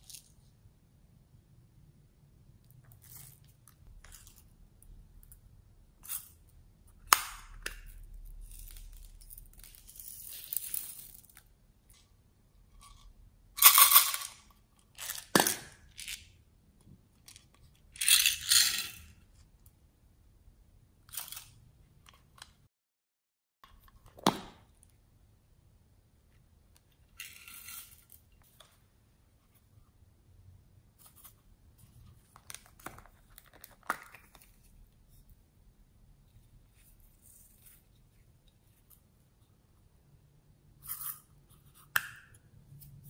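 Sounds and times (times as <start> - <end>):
small beads rattling: 8.4 - 11.4.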